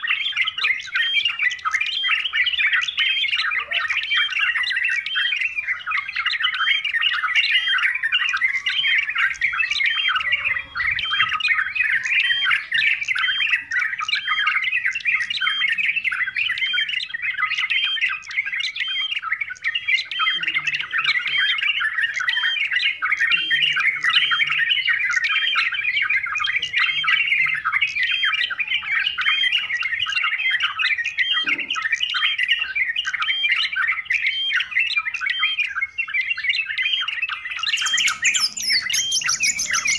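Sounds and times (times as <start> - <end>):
bulbul calling rapidly: 0.0 - 39.9.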